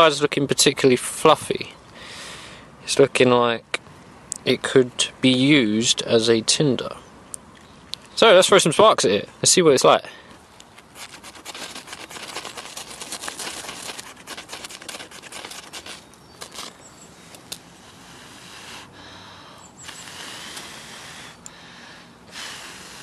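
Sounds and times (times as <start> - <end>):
ferro rod scraping: 10.8 - 16.8.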